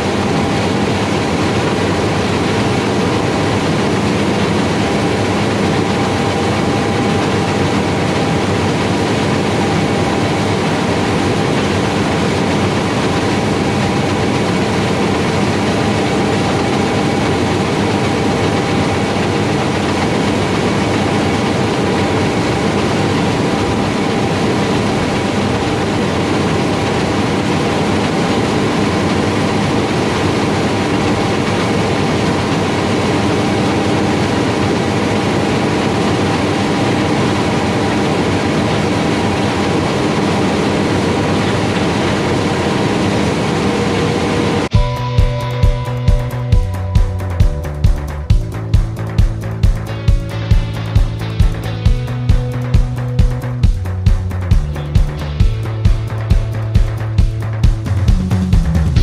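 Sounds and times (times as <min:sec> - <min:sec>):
machinery rumble: 0:00.0 - 0:59.0.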